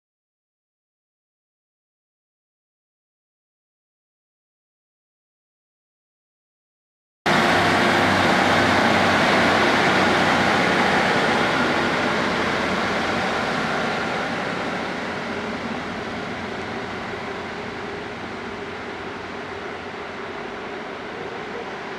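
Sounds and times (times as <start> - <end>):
diesel train engines pulling away: 7.3 - 21.9.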